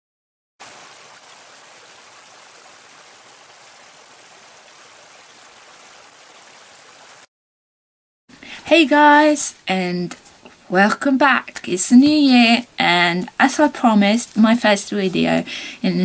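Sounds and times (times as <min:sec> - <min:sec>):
stream cascading over rocks: 0:00.6 - 0:07.3.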